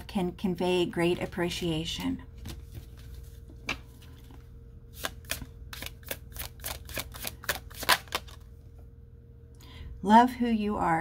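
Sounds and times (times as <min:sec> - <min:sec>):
cards being shuffled: 0:02.4 - 0:08.5.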